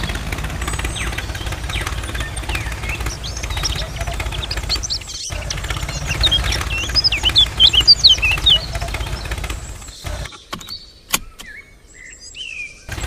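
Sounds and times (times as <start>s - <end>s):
small motor buzzing: 0.0s - 10.3s
sharp clicks: 0.0s - 11.6s
birds chirping: 0.0s - 13.0s.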